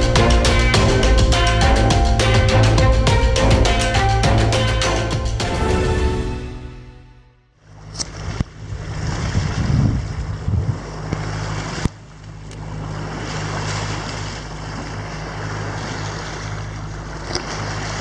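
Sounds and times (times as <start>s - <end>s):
boat engine running: 0.0s - 5.7s, 7.6s - 18.0s
water rushing along hull: 0.0s - 6.6s, 7.6s - 18.0s.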